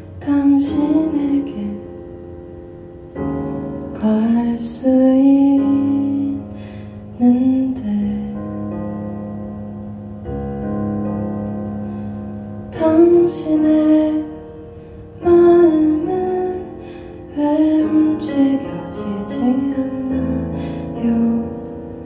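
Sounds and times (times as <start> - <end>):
piano chords: 0.0 - 22.0
woman singing ballad: 0.1 - 1.9, 3.9 - 8.5, 12.7 - 14.5, 15.2 - 21.7.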